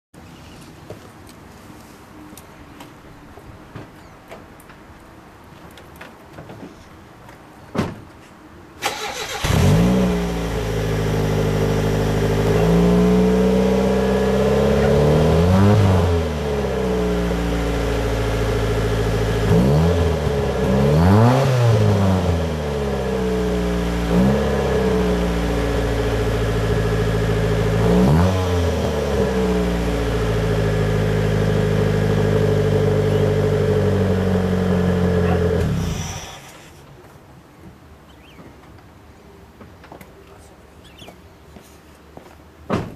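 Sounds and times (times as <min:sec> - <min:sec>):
car engine starting and idling: 0:08.8 - 0:36.8.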